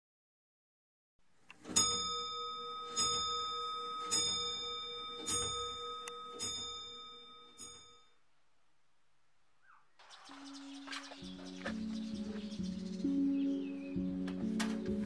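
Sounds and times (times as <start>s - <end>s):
bell ringing: 1.6s - 8.2s.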